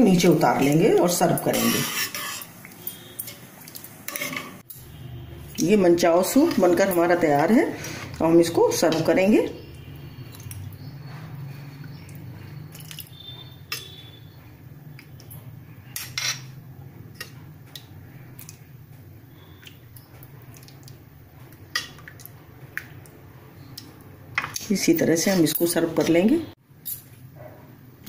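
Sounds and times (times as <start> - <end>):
ladle clinking and scraping: 0.1 - 4.8, 15.2 - 17.5.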